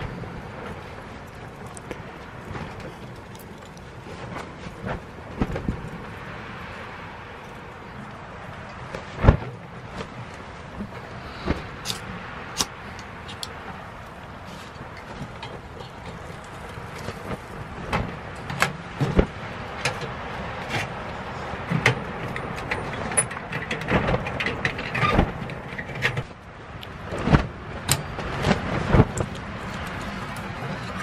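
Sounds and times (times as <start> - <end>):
kindling crackling and popping: 0.0 - 20.0
steady rushing background: 0.0 - 31.0.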